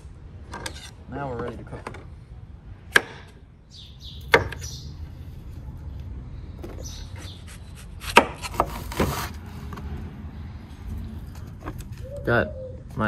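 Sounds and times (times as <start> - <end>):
knife chopping on wooden board: 4.3 - 4.7, 8.0 - 9.3.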